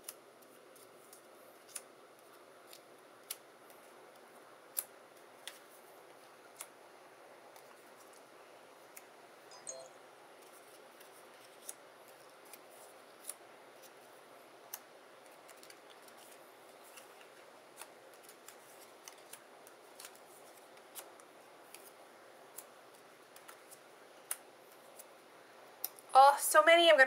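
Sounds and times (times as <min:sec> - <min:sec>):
cardstock pieces clicking and tapping: 0:14.7 - 0:25.1.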